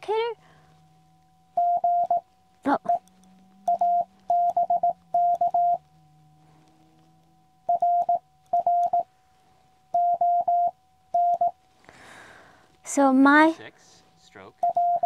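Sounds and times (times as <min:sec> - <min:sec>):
morse code tone: 0:01.6 - 0:03.0, 0:03.6 - 0:05.8, 0:07.7 - 0:09.1, 0:09.9 - 0:11.6, 0:14.6 - 0:15.0.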